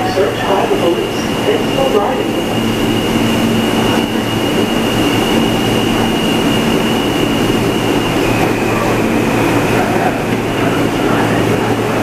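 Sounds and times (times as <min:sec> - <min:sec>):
low hum: 0:00.0 - 0:12.0
subway car wheel and track noise: 0:00.0 - 0:12.0.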